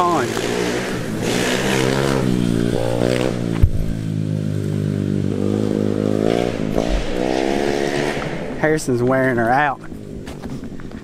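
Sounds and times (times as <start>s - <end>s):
mini bike engine running: 0.0s - 8.7s.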